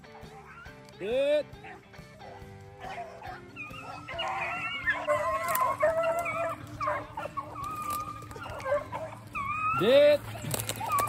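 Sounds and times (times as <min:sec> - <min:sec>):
hounds baying: 0:00.0 - 0:11.0.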